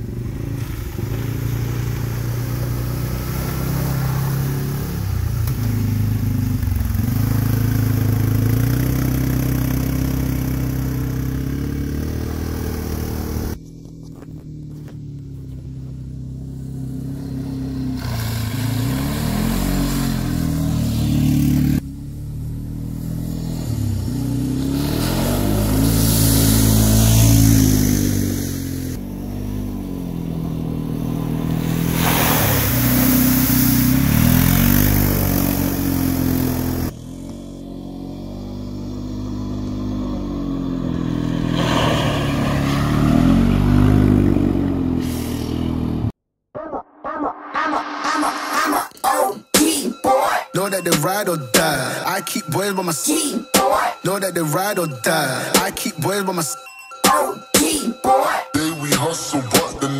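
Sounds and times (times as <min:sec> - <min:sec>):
mud and water spraying: 0:00.0 - 0:09.7, 0:17.7 - 0:21.4, 0:24.7 - 0:28.6, 0:31.1 - 0:36.8, 0:41.2 - 0:43.6
quad engine revving: 0:00.0 - 0:46.1.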